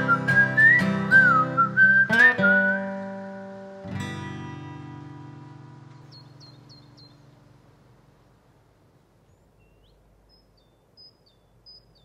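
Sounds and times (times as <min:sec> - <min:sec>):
acoustic guitar chord ringing: 0:00.0 - 0:07.6
small bird chirping: 0:05.9 - 0:07.5, 0:09.2 - 0:12.0.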